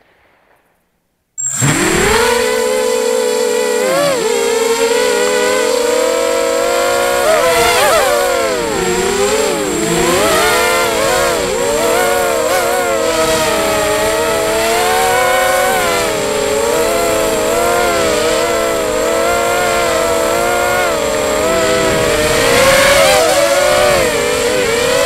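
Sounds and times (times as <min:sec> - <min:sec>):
quadcopter motors buzzing whine: 0:01.4 - 0:25.0.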